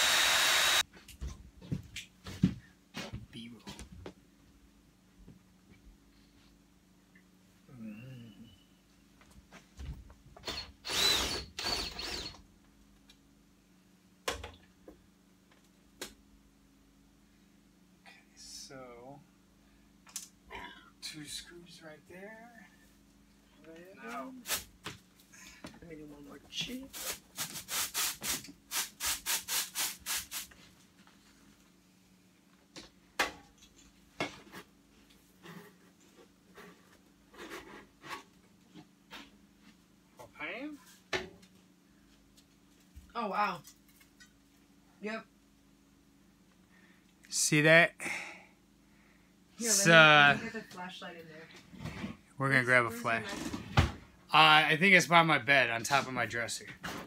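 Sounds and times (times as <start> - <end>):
power drill whining: 0.0 - 0.8, 10.4 - 12.4.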